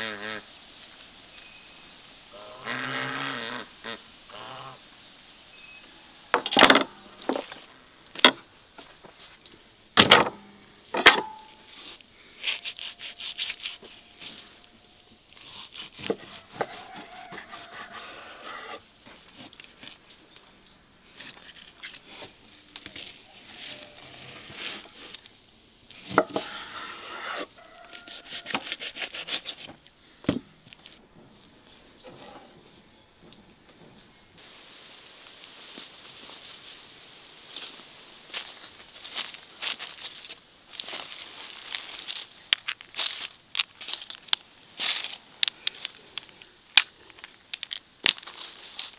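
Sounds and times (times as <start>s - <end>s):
knife slicing meat: 12.4s - 14.3s, 15.4s - 18.6s.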